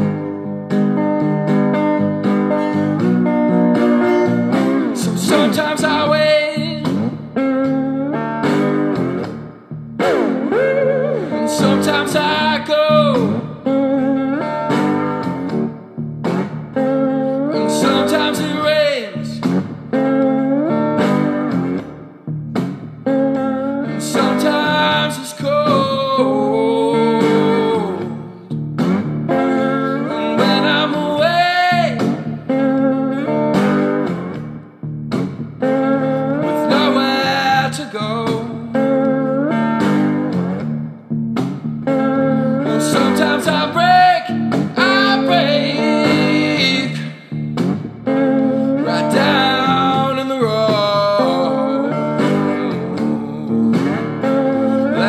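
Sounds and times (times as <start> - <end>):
blues music with slide guitar: 0.0 - 55.0.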